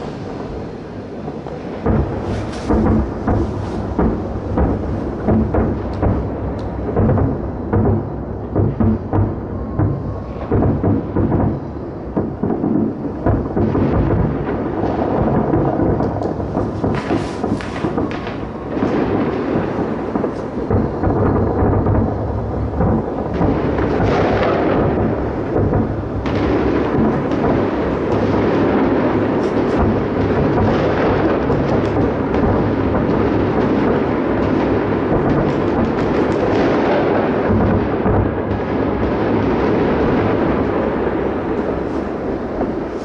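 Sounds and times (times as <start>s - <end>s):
fireworks booms rumbling: 0.0s - 43.0s
sharp firework cracks: 0.0s - 43.0s.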